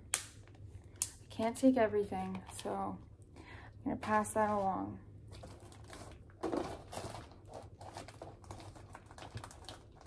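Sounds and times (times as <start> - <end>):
packaging rustling and clicking: 5.3 - 10.0.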